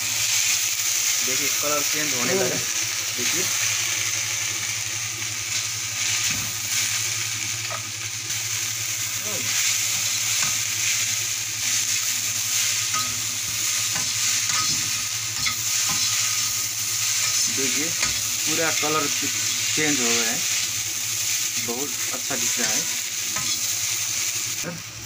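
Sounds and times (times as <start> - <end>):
noodles sizzling in a wok: 0.0 - 25.0
metal spatula scraping a pan: 12.6 - 20.2, 22.5 - 23.7.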